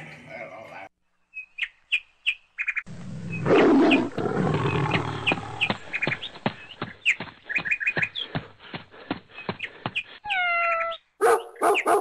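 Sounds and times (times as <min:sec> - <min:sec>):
tiger-like roar: 0:02.9 - 0:05.7.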